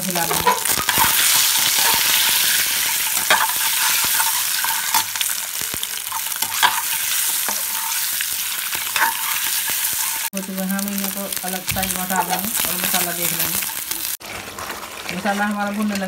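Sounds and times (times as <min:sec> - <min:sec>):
eggs sizzling in oil: 0:00.0 - 0:16.0
spatula scraping pan: 0:00.1 - 0:05.3, 0:06.0 - 0:10.3.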